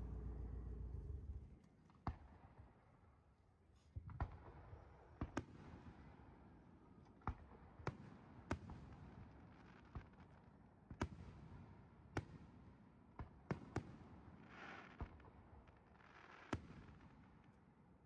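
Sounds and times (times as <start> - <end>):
low rumble: 0.0 - 1.6.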